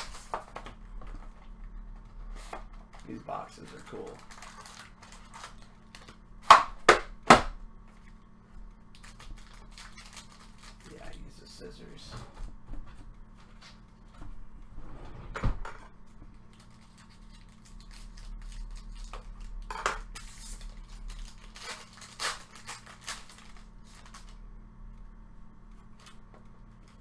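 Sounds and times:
foil crinkling and rustling: 0.0 - 0.6, 2.3 - 6.2, 8.9 - 11.4, 16.4 - 24.4
scissors cutting foil pack: 3.1 - 6.0, 8.9 - 11.2, 16.5 - 24.4.

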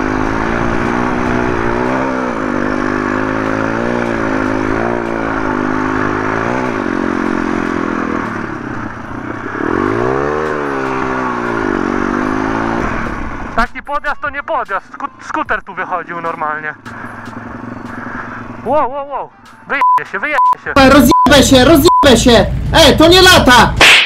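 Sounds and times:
motorbike engine revving: 0.0 - 13.6, 16.8 - 18.8.

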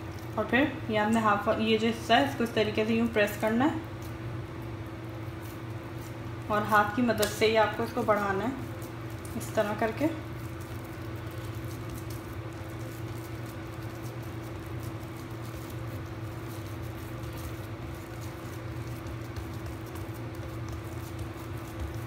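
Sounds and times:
steady low hum: 0.0 - 22.0
fingertips patting dough: 2.3 - 22.0.

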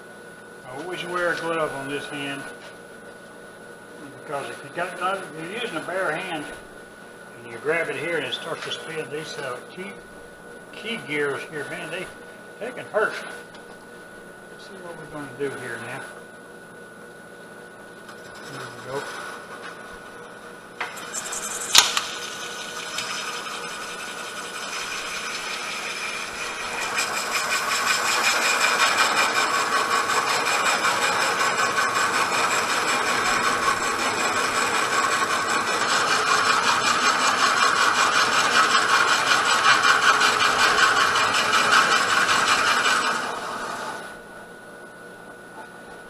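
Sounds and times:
lathe tool scraping wood: 18.2 - 19.8, 20.8 - 44.2
lathe running: 18.2 - 44.2
sharp click: 21.7 - 22.1.

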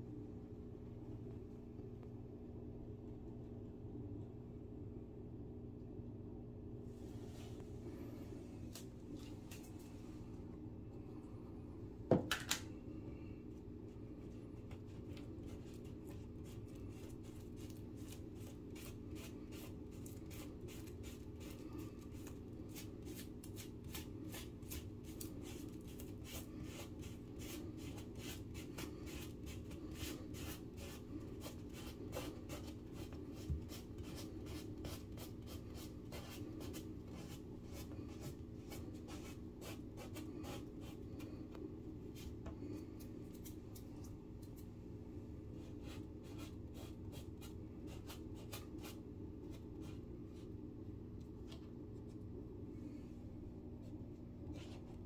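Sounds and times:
low background hum: 0.0 - 55.0
fingertip scratching drywall: 14.0 - 43.6, 45.5 - 50.6, 53.8 - 55.0.

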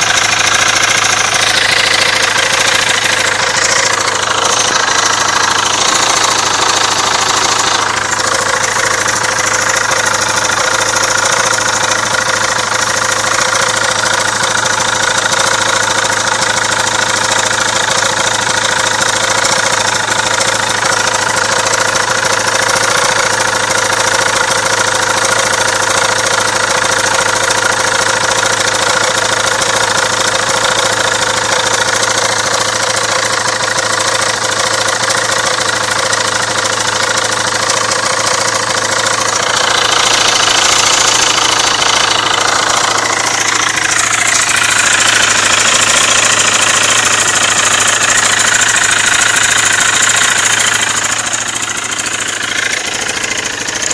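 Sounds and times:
motorcycle engine idling: 0.0 - 53.9.

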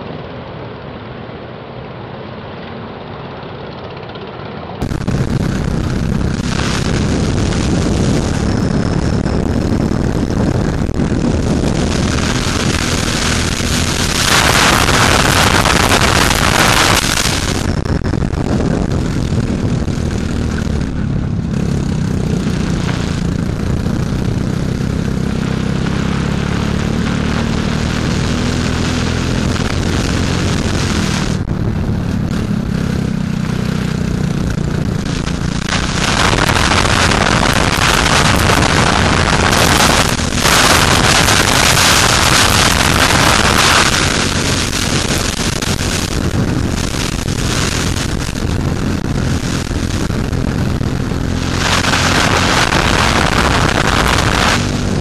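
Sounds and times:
kart engine running at speed: 0.0 - 55.0
loud rushing hiss: 4.8 - 17.7, 33.4 - 55.0.

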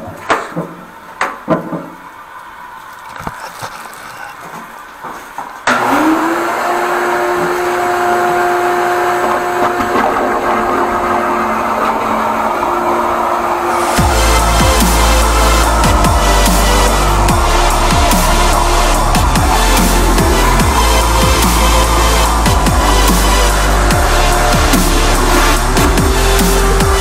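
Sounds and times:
vacuum motor whining and humming: 5.7 - 27.0.

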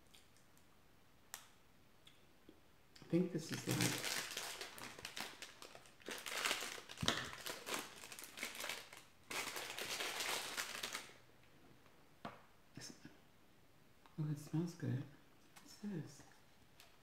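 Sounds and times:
plastic packaging crinkling: 3.5 - 11.2.

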